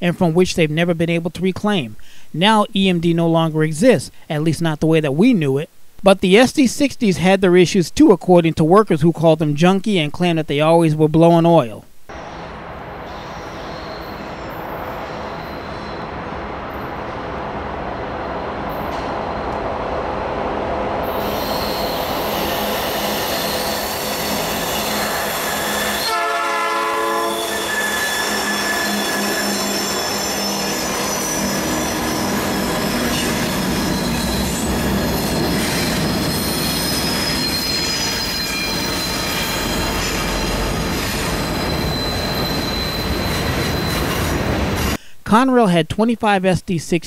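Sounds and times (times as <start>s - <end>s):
freight train passing: 12.1s - 45.0s
high-pitched wheel squeal: 12.2s - 16.2s, 21.0s - 45.0s
locomotive horn: 21.4s - 35.0s.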